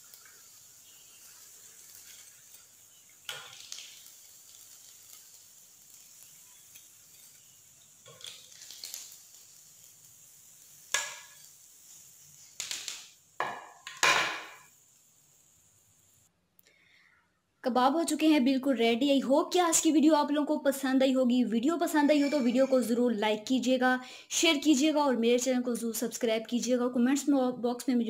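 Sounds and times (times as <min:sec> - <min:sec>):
food frying in oil: 0:00.0 - 0:16.3
metal tongs clacking on pan: 0:03.3 - 0:04.8, 0:08.0 - 0:09.0, 0:10.9 - 0:11.4.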